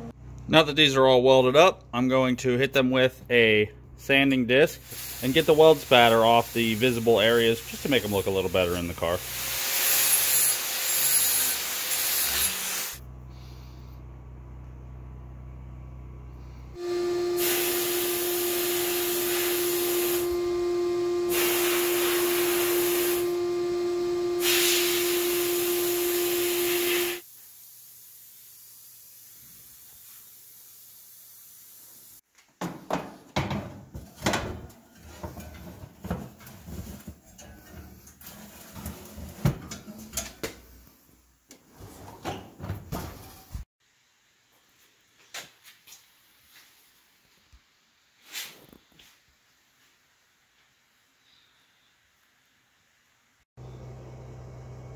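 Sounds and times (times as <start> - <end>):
disc grinding metal hiss: 4.9 - 13.0, 16.8 - 27.3
angle grinder running: 16.8 - 27.2
oven door and rack clanking: 32.7 - 40.6.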